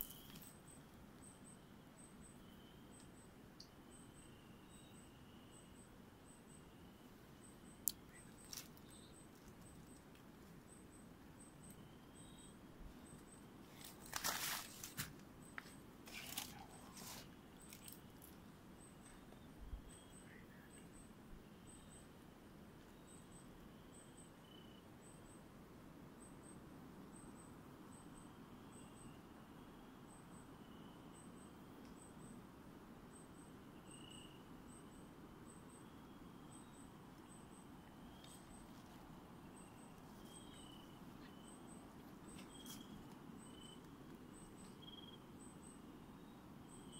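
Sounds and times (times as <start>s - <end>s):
rustles and crunches of leaves: 8.2s - 10.6s, 13.6s - 18.4s.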